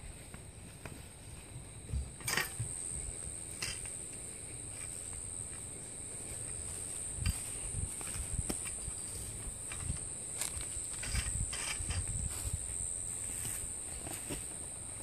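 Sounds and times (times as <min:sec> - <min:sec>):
insects droning: 0:00.0 - 0:15.0
tent poles clattering: 0:02.1 - 0:02.7.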